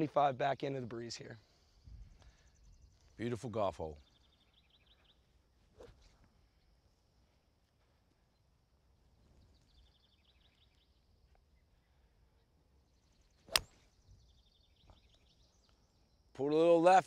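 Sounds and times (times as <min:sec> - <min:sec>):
faint chirps: 0:01.0 - 0:17.0
golf club striking ball: 0:13.5 - 0:13.8.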